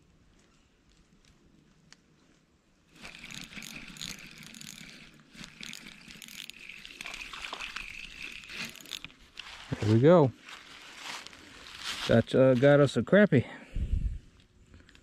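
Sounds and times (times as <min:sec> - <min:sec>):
fishing reel cranking: 0:02.9 - 0:09.6.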